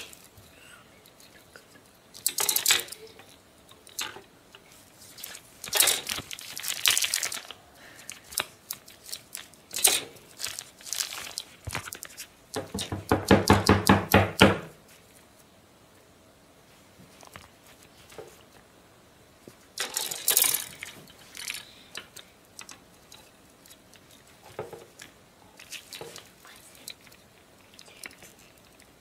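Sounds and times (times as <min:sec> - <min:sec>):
plastic packaging rustling: 0:04.8 - 0:12.4.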